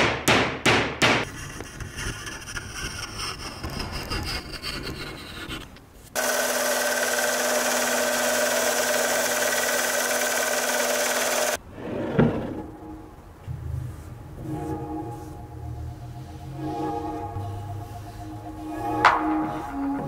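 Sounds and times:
hand sawing and rasping wood: 1.2 - 11.6
belt sander running: 6.2 - 11.6.

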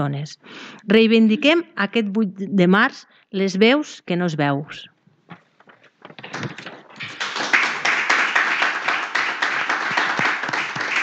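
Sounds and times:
people applauding: 6.2 - 11.0.

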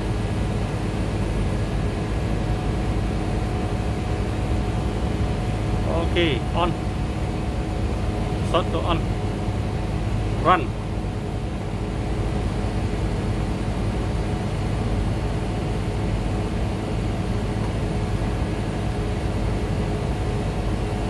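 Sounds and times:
air conditioning hum and rush: 0.0 - 21.0
constant low tones: 2.3 - 13.6.

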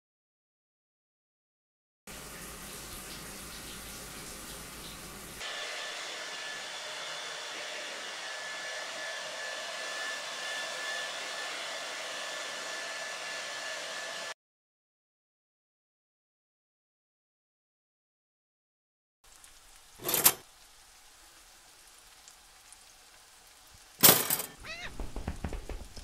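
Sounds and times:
hair dryers blowing: 5.4 - 14.4, 24.1 - 26.0.

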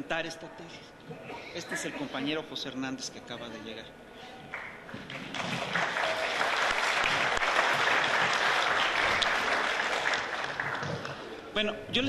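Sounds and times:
audience applauding: 4.5 - 11.3.

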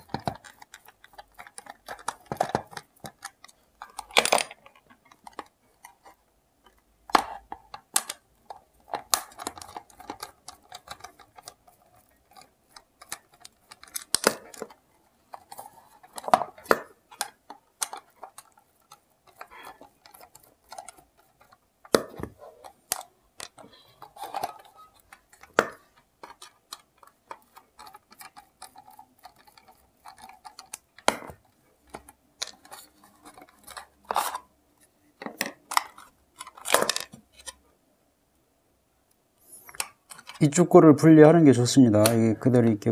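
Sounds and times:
plastic parts clicking and snapping: 0.0 - 34.5, 35.2 - 37.6, 39.6 - 40.6.

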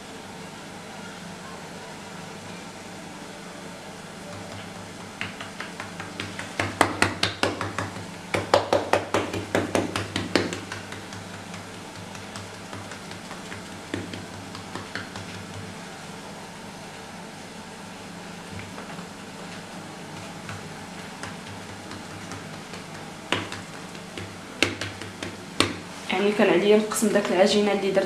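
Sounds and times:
steady low hum: 0.0 - 28.0
hands patting dough on stone: 4.3 - 15.9, 18.5 - 26.0.

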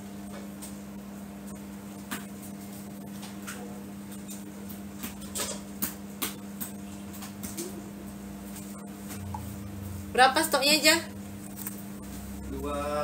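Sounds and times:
low hum: 6.8 - 13.0.

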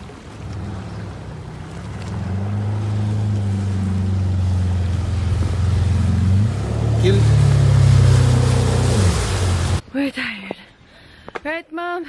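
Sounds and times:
jet ski engine running: 0.0 - 9.8
water and spray hissing: 0.6 - 9.8.

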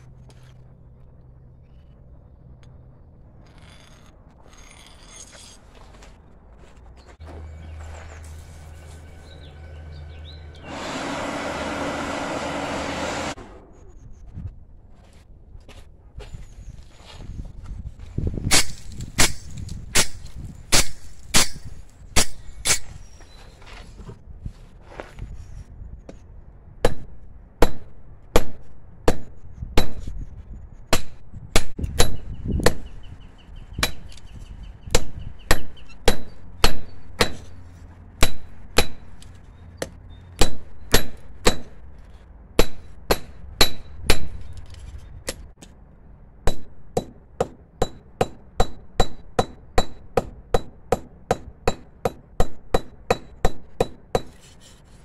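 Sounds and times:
hammer striking steel on anvil: 18.5 - 22.8, 46.4 - 54.4.

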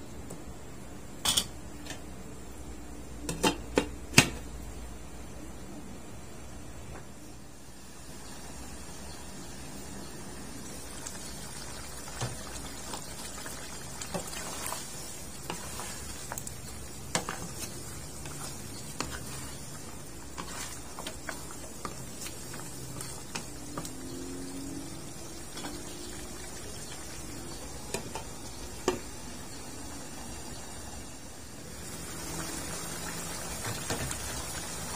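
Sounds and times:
sauce bubbling in a wok: 7.7 - 34.9
spatula tapping while stirring: 15.4 - 24.1.

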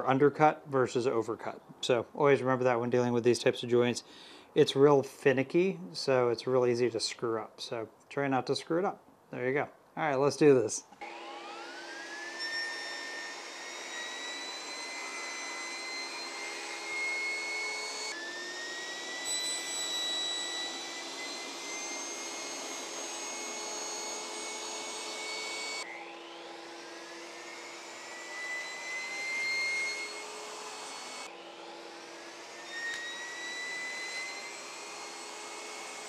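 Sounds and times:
table saw motor whine: 11.0 - 36.0.

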